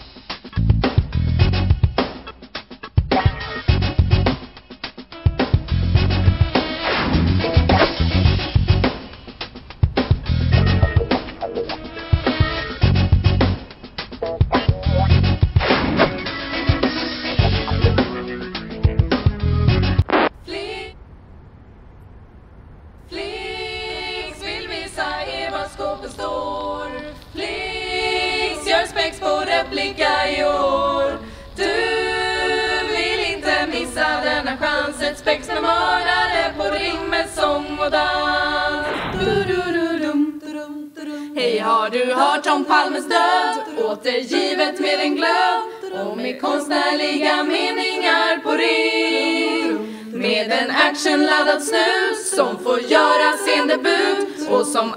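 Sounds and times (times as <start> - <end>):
low background hum: 20.3 - 41.3
women singing a cappella: 20.4 - 21.0, 23.1 - 54.9.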